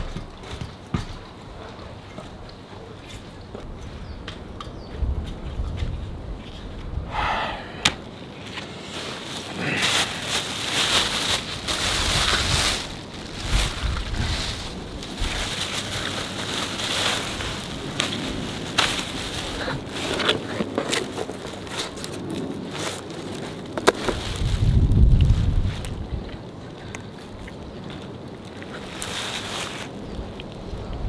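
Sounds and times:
plastic bags rustling and crinkling: 8.1s - 26.5s, 28.0s - 30.8s.

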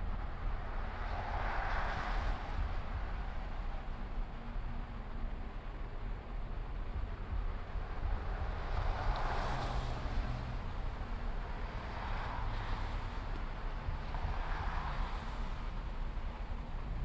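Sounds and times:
low rumble: 2.2s - 12.0s.

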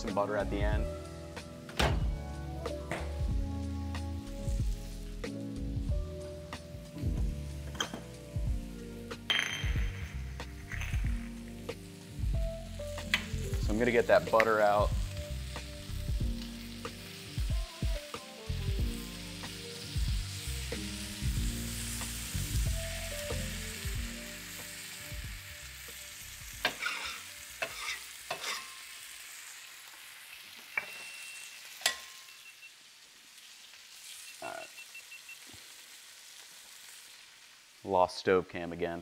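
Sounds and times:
steaks sizzling on a griddle: 0.0s - 37.9s
metal tongs clacking: 26.6s - 28.8s, 31.8s - 32.3s
brief beeps: 34.3s - 35.5s.

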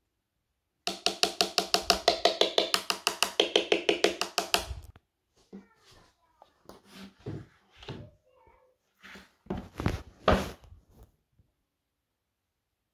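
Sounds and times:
rapid wood-block-like knocks: 0.9s - 4.8s.

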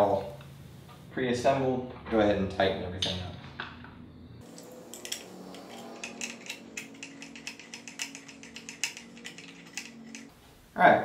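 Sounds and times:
hand ratchet clicking: 4.6s - 10.3s.

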